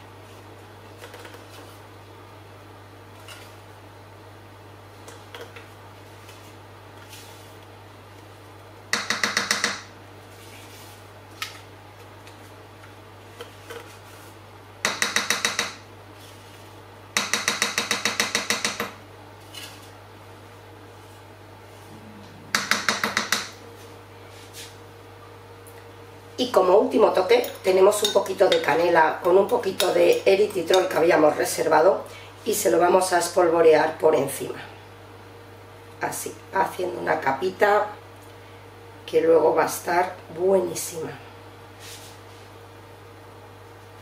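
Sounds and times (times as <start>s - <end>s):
metal taps on mixing bowl: 22.5s - 23.6s.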